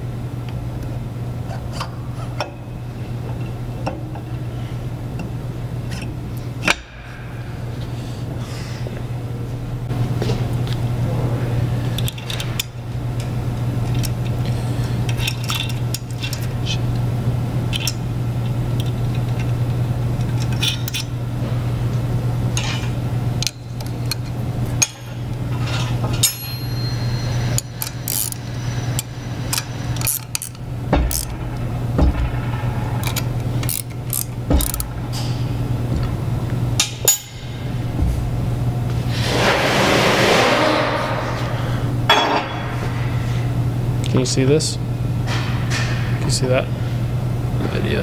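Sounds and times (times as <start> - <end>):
low hum: 0.0 - 44.1
metallic clinks of steel parts: 25.8 - 28.4, 36.8 - 37.6.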